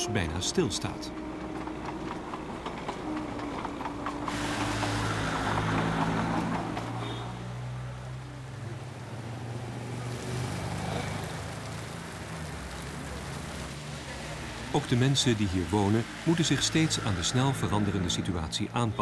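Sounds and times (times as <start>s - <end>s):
train rolling past: 0.0s - 10.0s, 14.3s - 19.0s
rain hissing on street: 4.2s - 19.0s.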